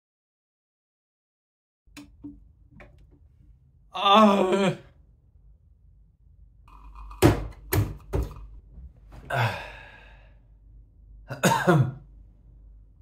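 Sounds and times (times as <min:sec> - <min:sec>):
man sighing: 0:04.0 - 0:04.9, 0:09.2 - 0:10.3
man coughing: 0:11.3 - 0:12.0.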